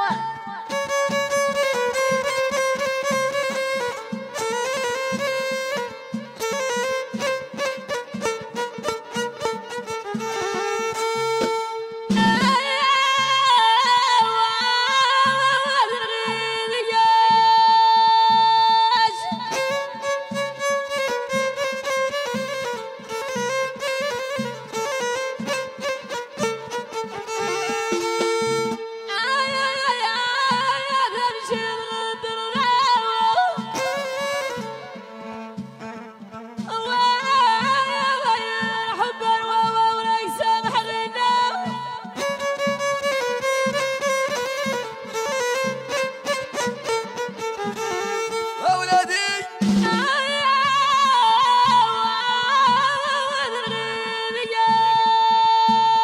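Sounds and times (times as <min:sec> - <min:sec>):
folk string melody: 0:00.0 - 0:56.0
steady drum beat: 0:49.6 - 0:50.1.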